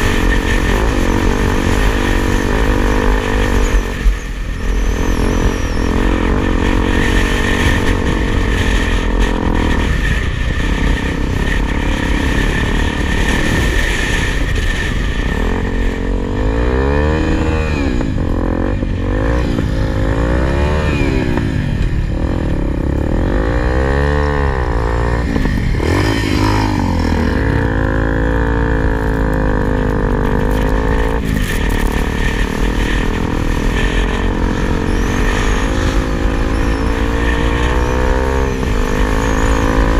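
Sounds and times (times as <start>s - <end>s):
motorcycle engine revving: 0.0s - 39.9s.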